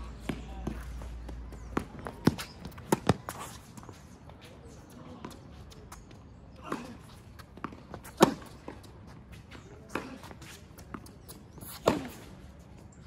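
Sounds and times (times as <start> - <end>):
tennis ball racket hits: 8.0 - 8.9, 11.6 - 12.3.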